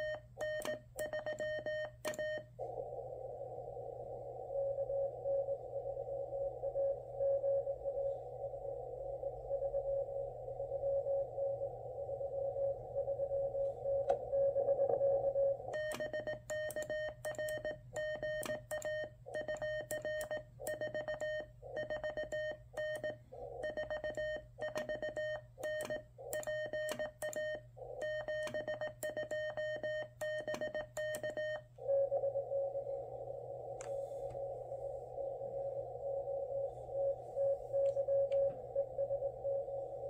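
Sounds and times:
transmit sidetone morse beeps: 0:00.0 - 0:02.5, 0:04.3 - 0:40.0.

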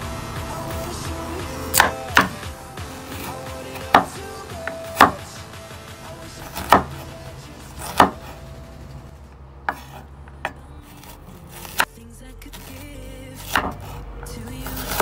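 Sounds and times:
knife chopping on cutting board: 0:01.7 - 0:02.4, 0:06.5 - 0:07.0, 0:07.8 - 0:08.3, 0:09.7 - 0:10.0, 0:13.5 - 0:13.9.

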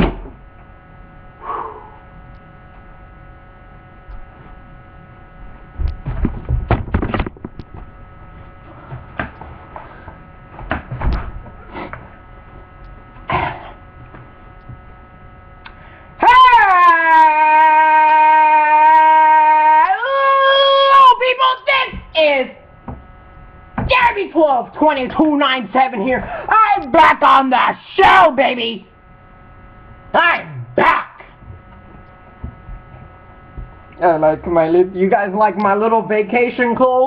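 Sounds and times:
electrical hum: 0:00.0 - 0:37.0
webcam handling knocks and bumps: 0:06.1 - 0:07.8.

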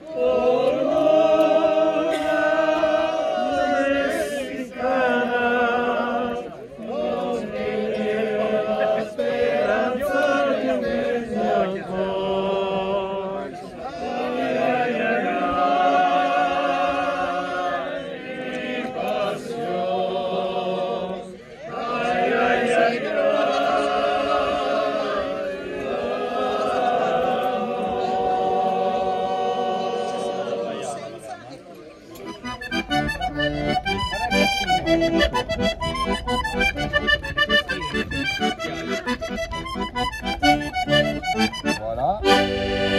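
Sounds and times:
group singing unaccompanied: 0:00.0 - 0:31.2, 0:42.2 - 0:42.9
men singing in harmony: 0:00.1 - 0:13.4.

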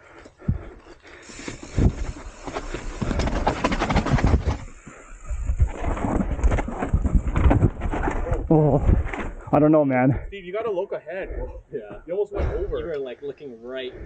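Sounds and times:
mountain bike rattling on rocks: 0:00.4 - 0:09.5.

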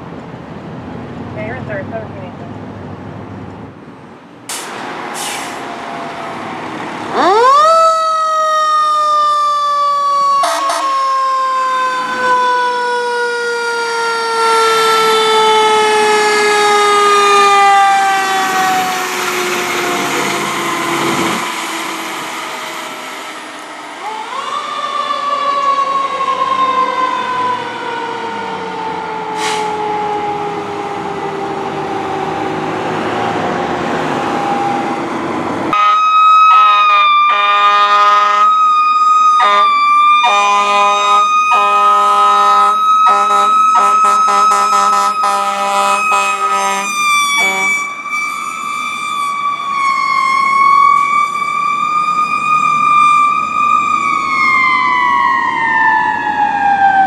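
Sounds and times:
fire engine siren: 0:04.5 - 0:57.0
horn blasts: 0:35.8 - 0:38.5, 0:39.4 - 0:48.6.

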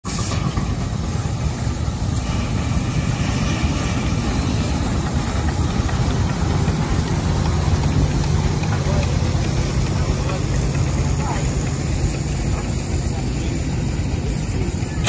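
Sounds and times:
low engine rumble: 0:00.0 - 0:15.0.

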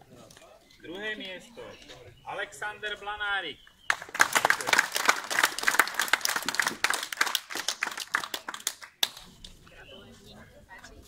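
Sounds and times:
group applauding: 0:03.9 - 0:09.3.

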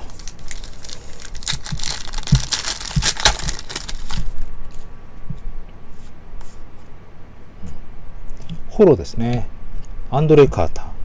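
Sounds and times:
wrapper torn open and crinkled: 0:00.0 - 0:04.4.

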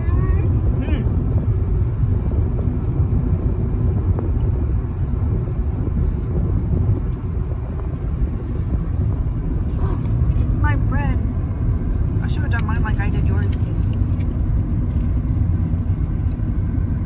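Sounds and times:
car cabin road rumble: 0:00.0 - 0:17.0.

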